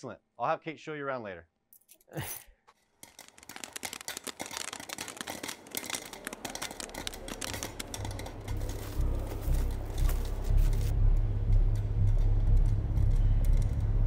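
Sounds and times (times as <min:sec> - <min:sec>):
popcorn popping: 0:03.0 - 0:11.0.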